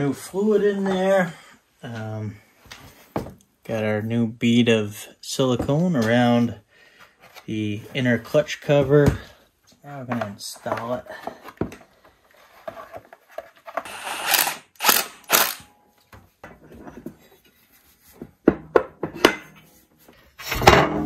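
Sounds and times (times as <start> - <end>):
short rasping bursts: 13.9 - 15.6
metal tools clunking and clicking: 18.8 - 19.7.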